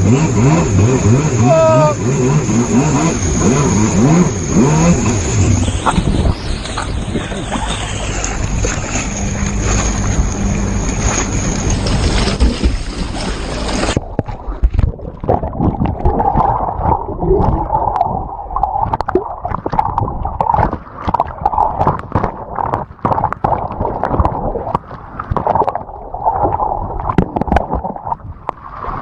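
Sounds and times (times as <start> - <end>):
churning gurgling water: 0.0 - 29.0
wind blasting microphone: 0.0 - 29.0
water splashes and knocks: 5.8 - 29.0.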